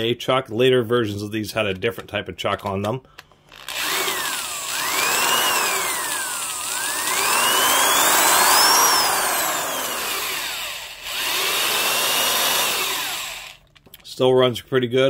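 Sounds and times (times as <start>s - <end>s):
corded drill motor whine: 3.5s - 13.7s.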